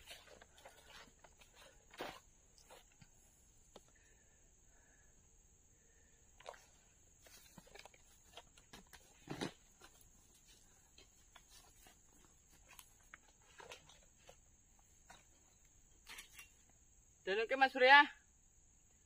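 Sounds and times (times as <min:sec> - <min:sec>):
footsteps on dry leaves: 0:00.0 - 0:02.9
equipment rustling and knocking: 0:00.0 - 0:03.9, 0:07.2 - 0:16.5.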